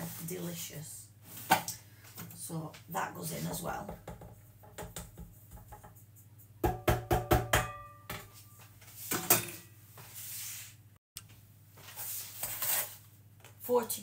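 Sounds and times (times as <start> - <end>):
metal bowl knocking: 6.6 - 8.4.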